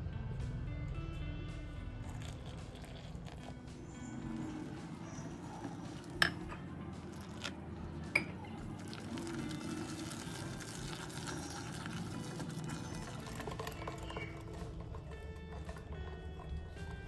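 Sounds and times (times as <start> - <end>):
whisk clinking against glass: 8.1 - 8.4
whisk beating batter in a bowl: 9.6 - 17.0.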